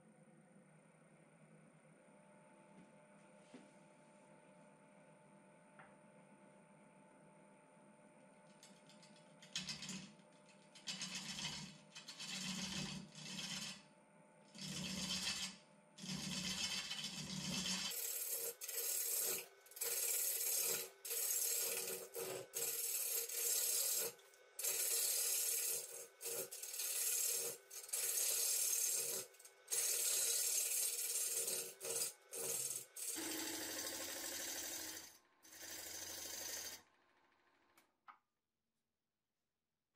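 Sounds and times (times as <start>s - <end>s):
lathe tool rasping wood: 10.9s - 13.8s, 14.6s - 36.8s.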